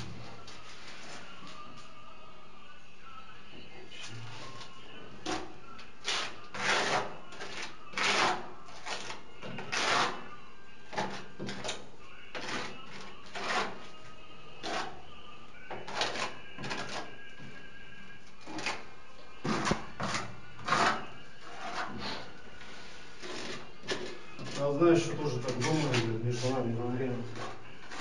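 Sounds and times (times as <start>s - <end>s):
spatula scraping tile adhesive: 5.2s - 10.2s, 10.9s - 13.9s, 15.7s - 17.1s, 18.4s - 22.3s, 23.2s - 28.0s.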